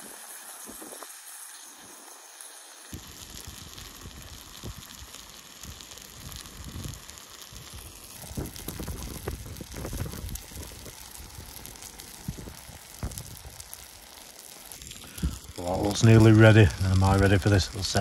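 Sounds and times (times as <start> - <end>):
meat sizzling in frying pan: 0.0 - 18.0
wind buffeting microphone: 8.2 - 11.6, 12.2 - 13.6, 15.2 - 18.0.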